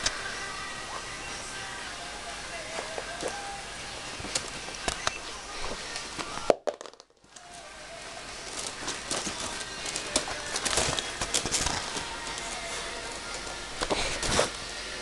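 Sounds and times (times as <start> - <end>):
puppies scuffling on bedding: 8.4 - 14.6.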